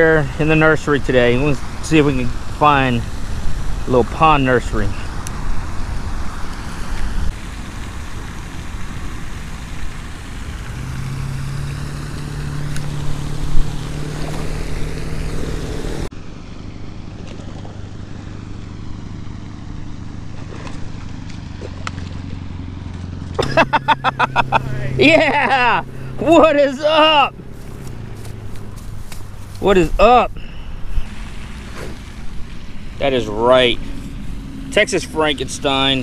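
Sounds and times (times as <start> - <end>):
steady low hum: 0.0 - 36.0.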